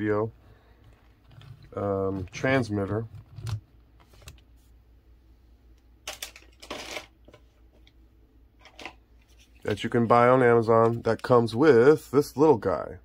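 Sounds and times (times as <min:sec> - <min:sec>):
steady low hum: 0:00.0 - 0:13.0
small objects clicking and rustling: 0:06.0 - 0:07.4.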